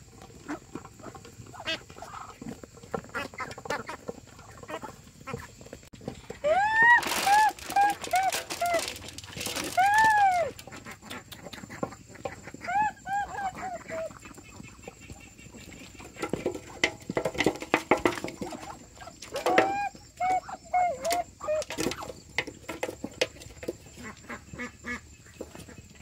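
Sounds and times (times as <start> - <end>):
chickens calling: 0.0 - 26.0
sharp knocks and clatter: 15.7 - 19.8, 21.0 - 24.3.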